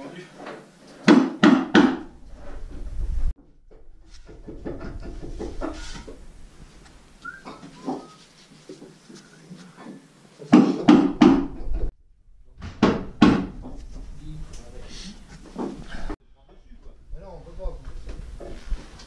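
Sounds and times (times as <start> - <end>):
loud knocks on wooden planking: 1.1 - 2.1, 10.5 - 11.6, 12.6 - 13.7.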